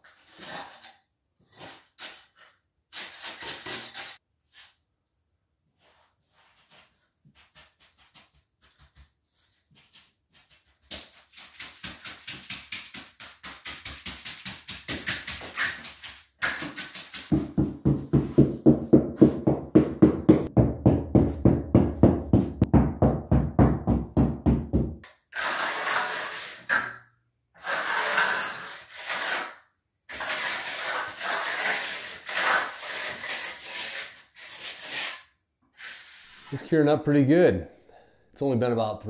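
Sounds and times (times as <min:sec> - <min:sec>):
trowel scraping wet concrete: 0:00.1 - 0:04.2, 0:25.3 - 0:26.8, 0:27.6 - 0:36.7
float strokes smoothing concrete: 0:25.4 - 0:26.7.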